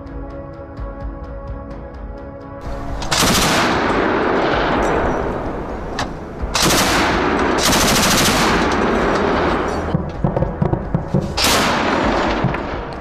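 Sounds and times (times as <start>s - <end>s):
background music: 0.0s - 13.0s
automatic gunfire: 3.0s - 13.0s.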